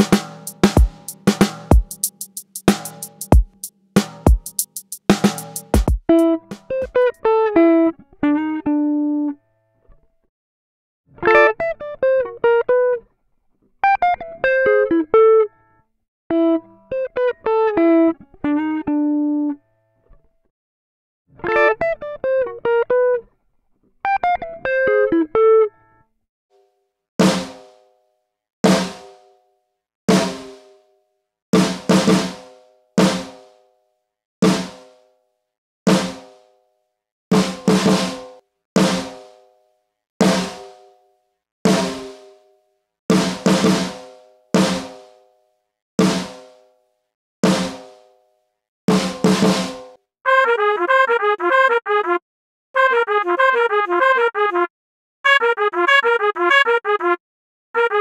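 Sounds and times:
snare drum hits: 0:00.0 - 0:07.0, 0:27.2 - 0:27.8, 0:28.7 - 0:29.2, 0:30.1 - 0:30.7, 0:31.6 - 0:33.6, 0:34.4 - 0:35.0, 0:35.9 - 0:36.4, 0:37.3 - 0:39.4, 0:40.2 - 0:40.8, 0:41.7 - 0:42.3, 0:43.1 - 0:45.2, 0:46.0 - 0:46.6, 0:47.4 - 0:48.1, 0:48.9 - 0:49.9.

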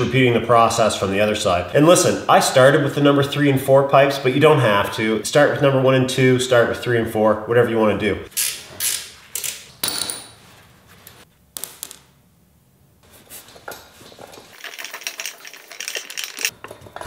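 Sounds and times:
wrench clinking on metal: 0:14.5 - 0:16.8.

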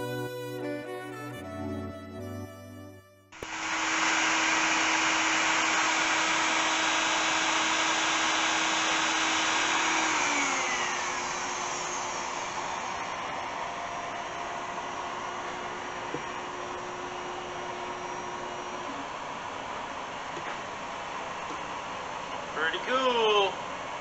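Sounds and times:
router whining at high speed: 0:03.4 - 0:22.3.

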